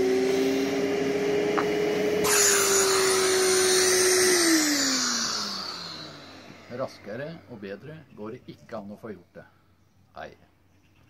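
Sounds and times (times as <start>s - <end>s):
dust extractor motor whine: 0.0s - 8.0s
air rushing through hose: 2.0s - 7.0s.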